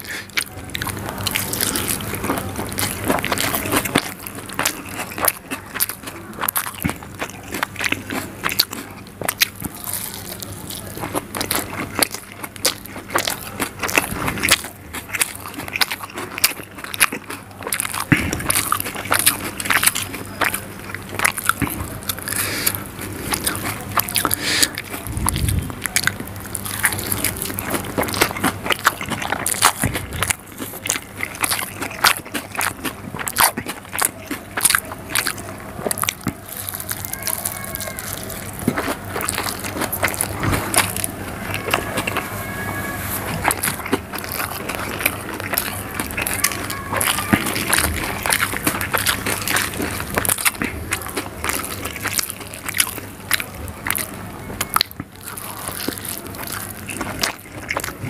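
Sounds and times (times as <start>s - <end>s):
chewing with lip smacks: 0.0s - 42.4s, 43.0s - 58.0s
mouth clicks and crackles: 0.0s - 42.4s, 43.1s - 58.0s
fingers in soft food: 0.0s - 58.0s.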